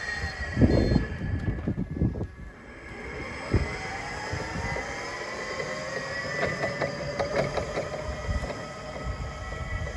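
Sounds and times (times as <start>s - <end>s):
electric forklift drive whining: 0.0s - 9.9s.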